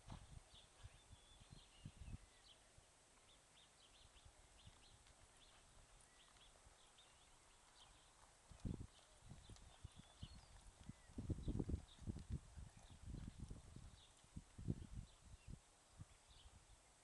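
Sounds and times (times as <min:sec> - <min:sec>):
horse hoofbeats on dirt: 0:00.0 - 0:01.0, 0:04.6 - 0:14.6
small birds chirping: 0:00.0 - 0:17.0.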